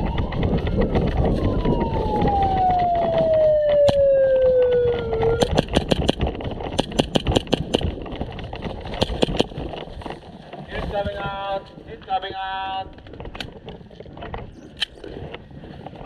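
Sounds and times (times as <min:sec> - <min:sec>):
siren-like tone sliding down: 0:00.0 - 0:05.5
airsoft pistol rapid shots: 0:05.4 - 0:06.2, 0:06.8 - 0:07.9.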